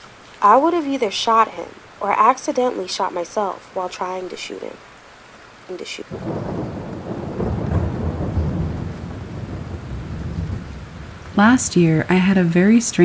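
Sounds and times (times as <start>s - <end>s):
rain: 0.0s - 13.0s
thunder rumbling: 6.0s - 13.0s.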